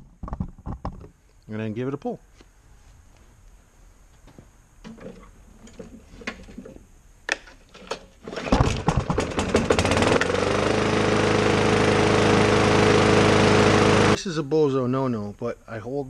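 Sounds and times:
lawn mower engine running: 0:08.2 - 0:14.2.

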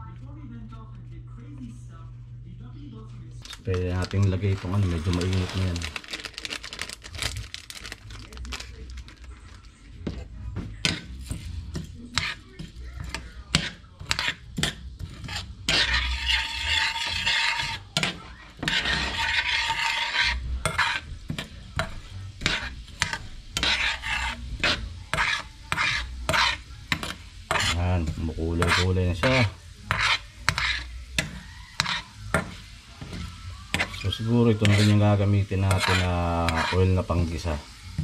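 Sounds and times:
spatula scraping a frying pan: 0:03.8 - 0:05.9, 0:10.0 - 0:38.0.

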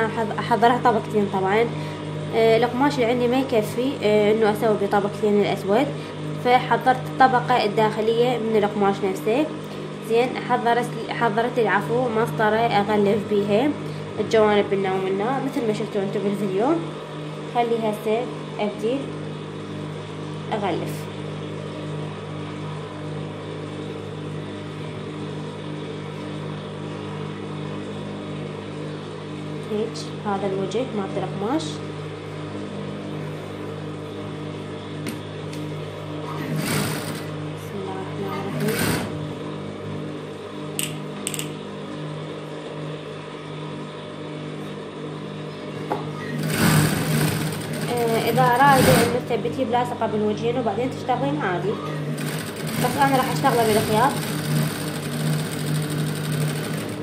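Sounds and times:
sewing machine motor humming: 0:36.3 - 0:37.4, 0:38.3 - 0:39.4, 0:46.2 - 0:49.4, 0:52.0 - 0:57.0.

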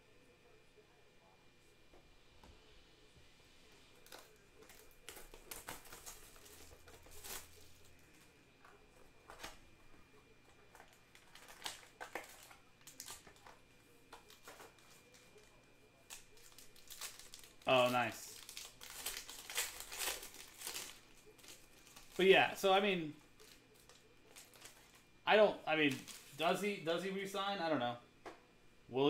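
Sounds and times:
cards and packaging rustling: 0:03.9 - 0:25.1, 0:25.7 - 0:27.4.

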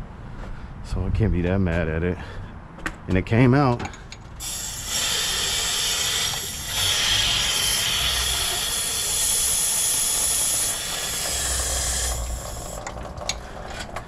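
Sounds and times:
water rushing out of engine block: 0:04.4 - 0:13.7.

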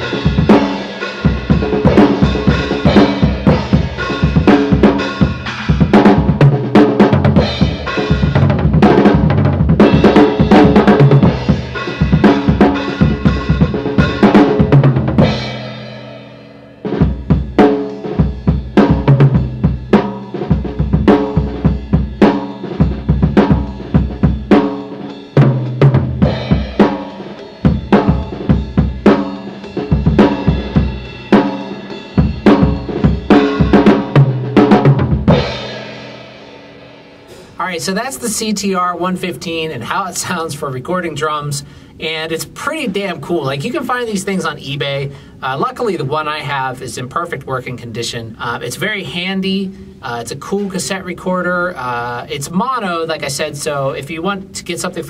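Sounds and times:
drum kit rock beat: 0:00.0 - 0:46.7
cymbal ringing: 0:24.6 - 0:34.2.

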